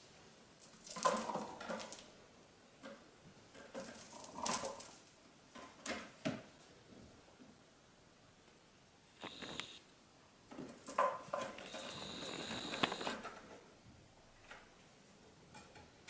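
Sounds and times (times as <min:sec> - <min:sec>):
cat rustling and scratching toy: 0:03.4 - 0:05.7
sharp clicks: 0:09.2 - 0:09.8, 0:11.5 - 0:13.2.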